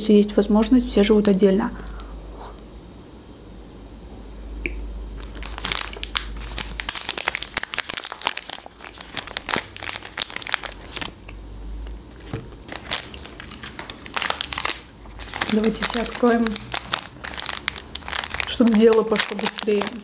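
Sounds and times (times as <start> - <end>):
plastic wrapper crinkling: 5.2 - 11.2, 11.9 - 20.0.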